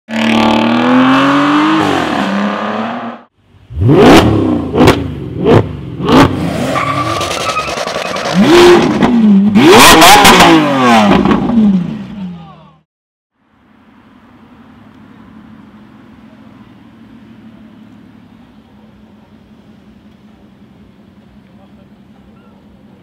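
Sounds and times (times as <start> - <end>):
car engine revving: 0.1 - 12.1.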